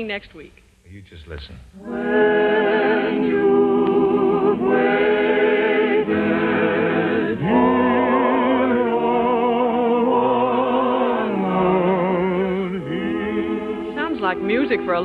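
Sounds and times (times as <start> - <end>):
person singing with vibrato: 1.8 - 15.0
orchestral accompaniment: 12.9 - 15.0.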